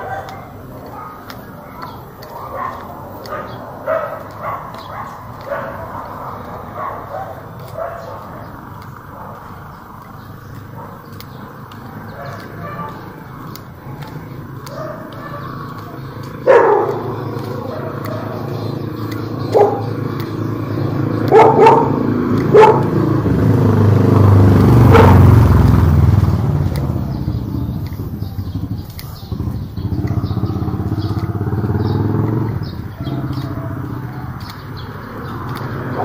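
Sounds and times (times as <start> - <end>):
dog barking: 0.0 - 9.7, 10.6 - 11.4, 12.0 - 23.1, 24.8 - 25.6, 30.1 - 34.5, 35.5 - 36.0
motorcycle passing: 0.0 - 36.0.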